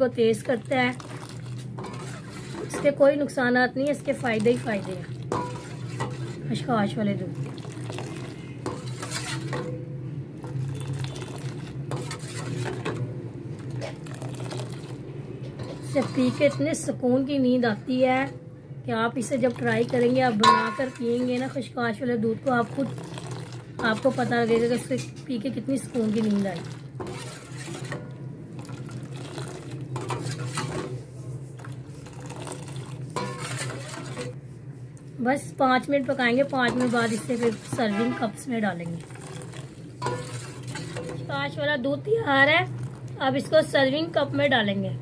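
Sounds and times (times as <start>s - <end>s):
steady low hum: 0.0s - 45.0s
metal ladle stirring in pan: 0.3s - 6.7s, 7.4s - 9.8s, 10.4s - 17.0s, 19.3s - 21.6s, 22.4s - 34.4s, 36.0s - 41.4s.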